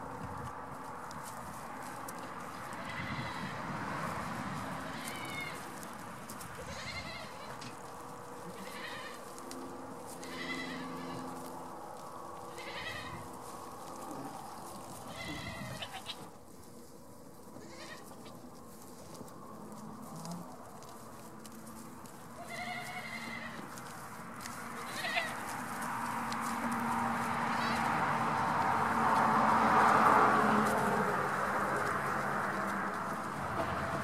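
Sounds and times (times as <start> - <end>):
goats bleating: 2.6 - 3.6, 4.9 - 5.7, 6.6 - 7.7, 8.4 - 11.6, 12.4 - 16.3, 17.6 - 18.3, 22.4 - 23.8, 24.8 - 25.5, 27.1 - 28.2.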